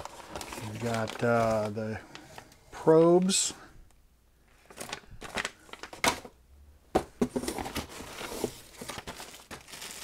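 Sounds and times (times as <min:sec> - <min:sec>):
plastic bags crinkling: 0:00.0 - 0:02.5, 0:04.7 - 0:06.3, 0:07.4 - 0:10.0.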